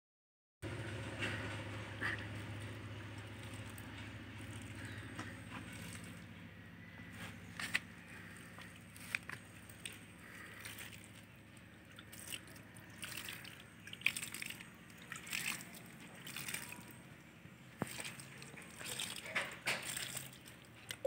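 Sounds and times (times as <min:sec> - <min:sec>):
water splashing on soil: 0:03.2 - 0:06.3, 0:07.6 - 0:17.0, 0:17.8 - 0:20.8.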